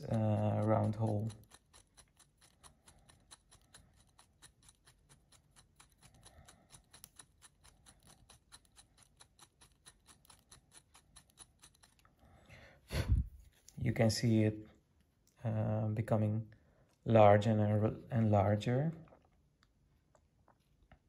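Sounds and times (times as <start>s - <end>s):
hand drill clicking: 0.9s - 12.1s.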